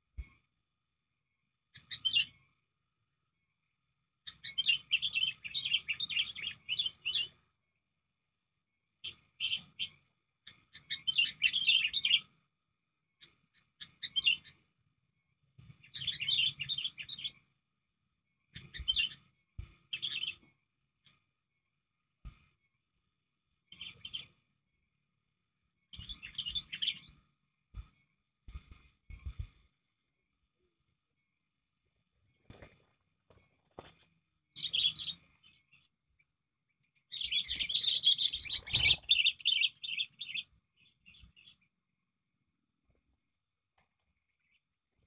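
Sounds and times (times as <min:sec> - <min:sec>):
bird chattering calls: 0:37.1 - 0:40.4.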